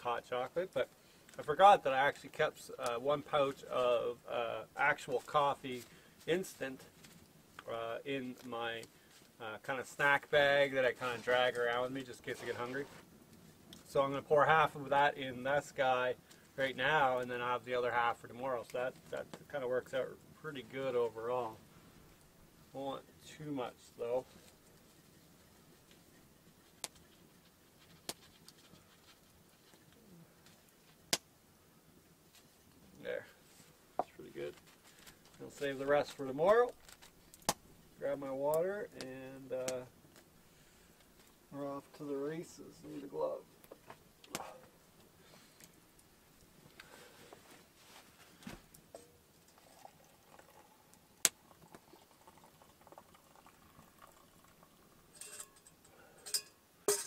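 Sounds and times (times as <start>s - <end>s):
coffee granules rustling into mug: 48.8s - 55.8s.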